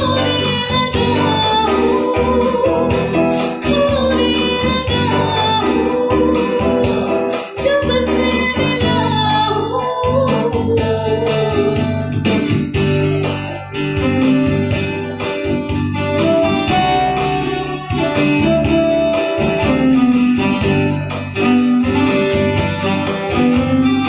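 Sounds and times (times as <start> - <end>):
woman singing into microphone: 0.0 - 14.6, 16.0 - 20.4
guitar: 0.0 - 24.0.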